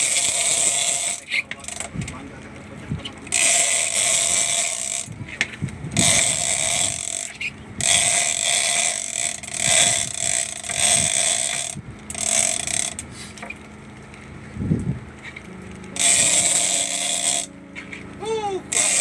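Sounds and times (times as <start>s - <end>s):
fishing reel whirring: 0.0s - 1.8s, 3.3s - 5.2s, 6.0s - 13.1s, 15.9s - 17.6s, 18.2s - 19.0s.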